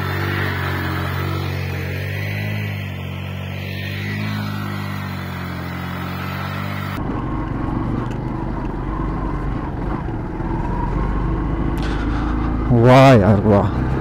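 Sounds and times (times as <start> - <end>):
motorcycle engine running: 0.0 - 14.0
wind and road noise: 0.0 - 14.0.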